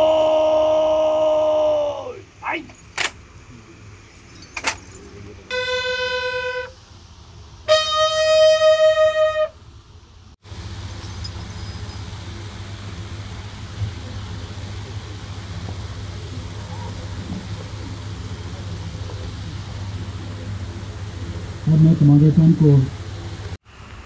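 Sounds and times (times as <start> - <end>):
bugle long notes: 5.5 - 6.8, 7.7 - 9.6.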